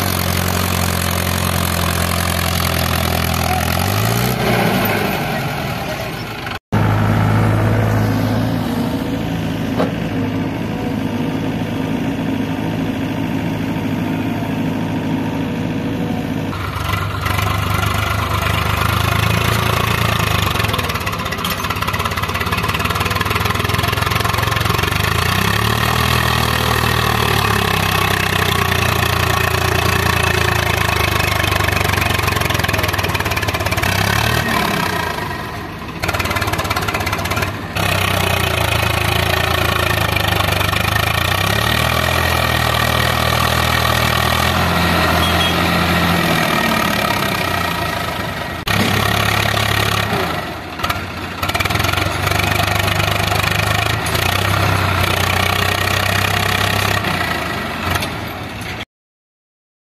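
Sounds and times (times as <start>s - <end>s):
diesel tractor engine: 0.0s - 58.9s.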